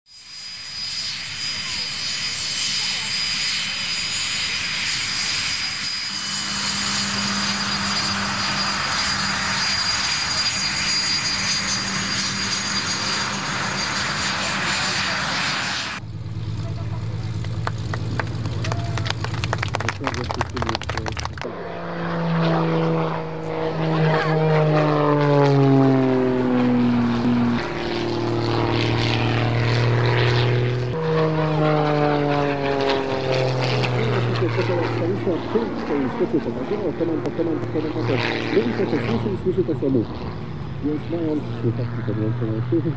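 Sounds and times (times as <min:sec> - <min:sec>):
jet engines whining: 0:00.1 - 0:42.9.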